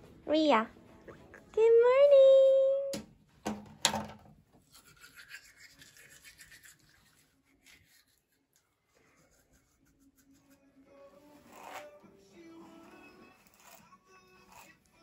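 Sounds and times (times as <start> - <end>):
toothbrush scrubbing teeth: 4.6 - 15.0.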